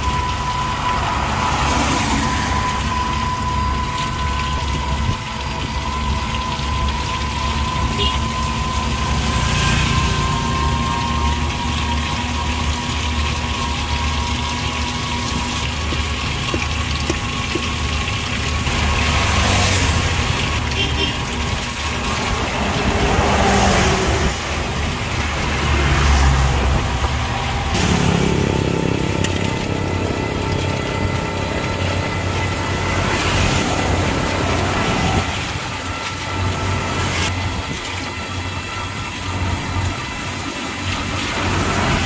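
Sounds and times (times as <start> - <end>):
car engine hum: 0.0 - 42.0
tyre hiss on wet road: 1.0 - 2.6, 9.1 - 10.6, 22.1 - 24.7.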